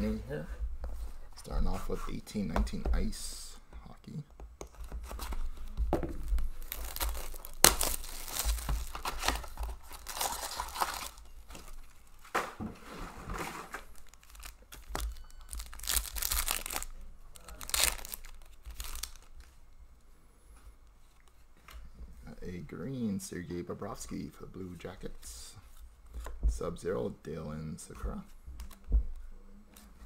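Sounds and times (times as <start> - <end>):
card pack wrappers crinkling: 4.7 - 12.2, 13.8 - 19.5
plastic shrink wrap ripping: 6.3 - 11.9, 13.8 - 19.4.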